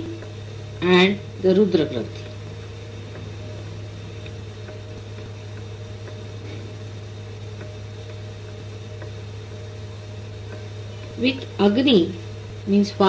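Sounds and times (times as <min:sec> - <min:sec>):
steady low hum: 0:00.0 - 0:13.0
faint ticks: 0:02.2 - 0:11.6.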